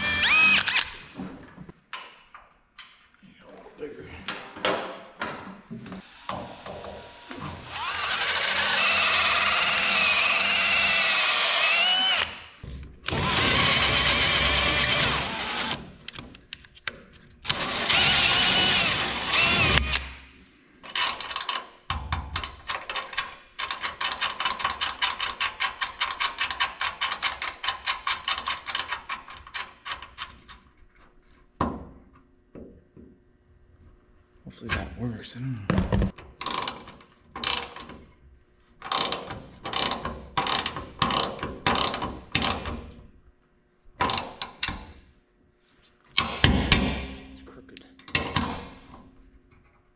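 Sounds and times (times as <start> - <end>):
drill boring through metal: 0.0 - 0.8, 6.0 - 12.4, 13.1 - 15.8, 17.5 - 20.0.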